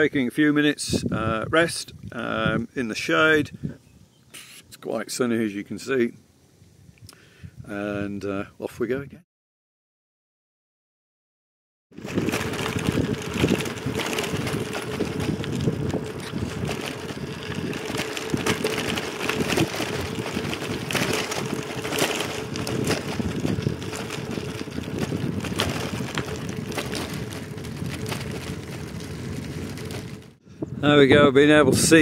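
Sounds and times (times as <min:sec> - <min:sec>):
wind buffeting microphone: 0:00.8 - 0:04.1, 0:12.0 - 0:32.0
bicycle tyres on rough surface: 0:11.9 - 0:31.0.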